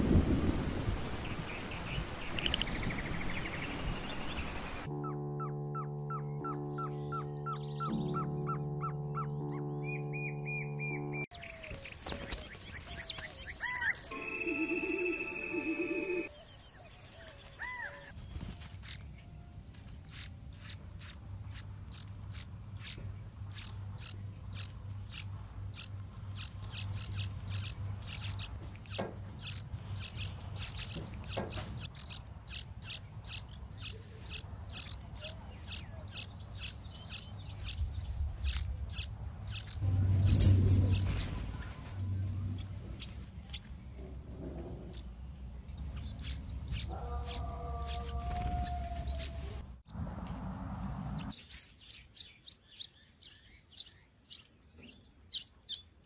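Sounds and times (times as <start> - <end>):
nestlings chirping: 11.3 - 19.2, 19.8 - 44.1, 44.9 - 49.6, 51.1 - 56.0
steady low hum: 36.6 - 46.8.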